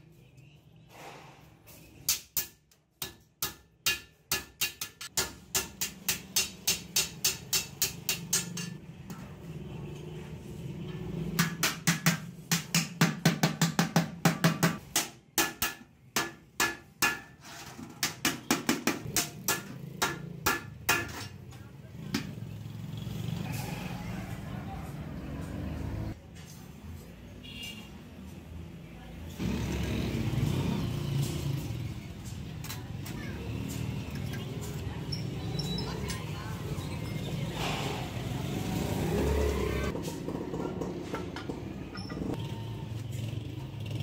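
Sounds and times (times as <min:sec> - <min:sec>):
hammer striking metal bucket: 0:11.4 - 0:21.4.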